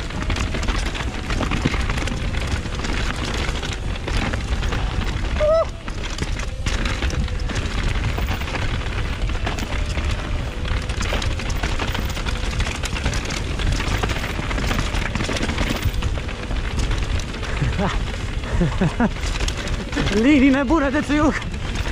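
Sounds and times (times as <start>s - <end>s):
bike rattling over bumps: 0.0s - 21.9s
tyres rolling over stony trail: 0.0s - 21.9s
wind buffeting microphone: 0.0s - 21.9s.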